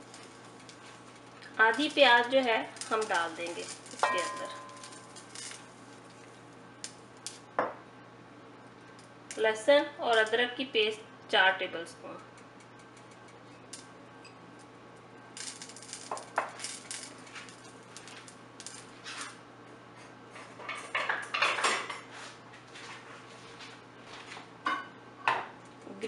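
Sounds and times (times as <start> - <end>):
dishes and utensils clinking: 3.8 - 5.2.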